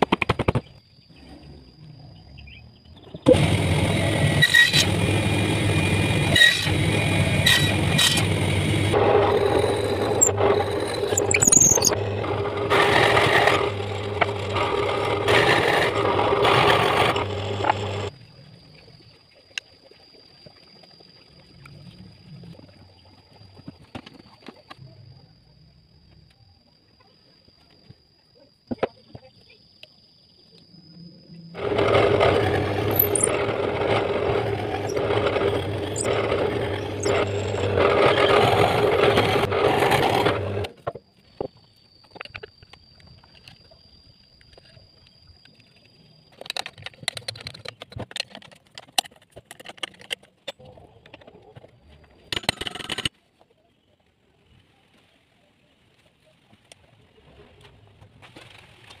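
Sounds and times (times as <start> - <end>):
power tool humming: 3.3 - 18.1, 31.6 - 40.7.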